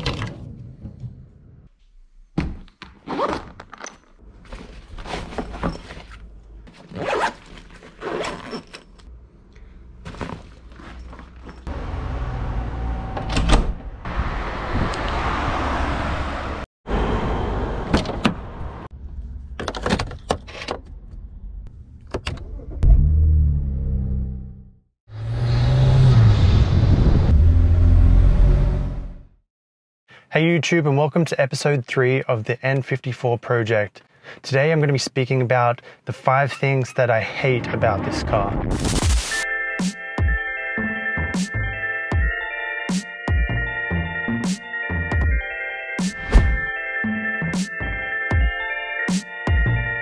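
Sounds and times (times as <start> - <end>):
car engine starting: 22.2 - 29.2.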